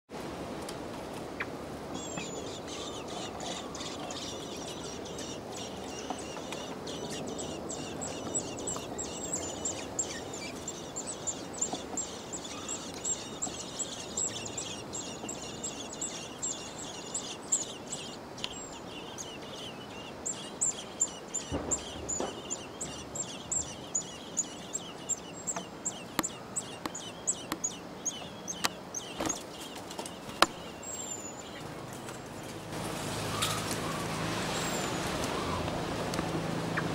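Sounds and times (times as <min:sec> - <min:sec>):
low steady background noise: 0:00.1 - 0:36.9
nestlings cheeping: 0:02.0 - 0:32.2.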